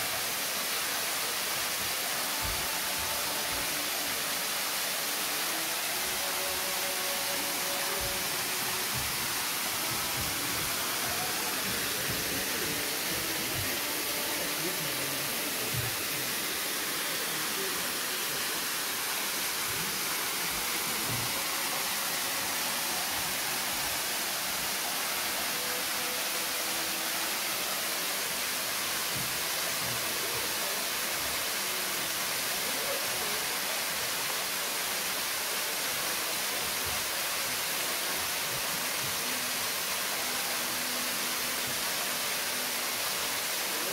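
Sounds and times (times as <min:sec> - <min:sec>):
waterfall rushing: 0:00.0 - 0:43.9.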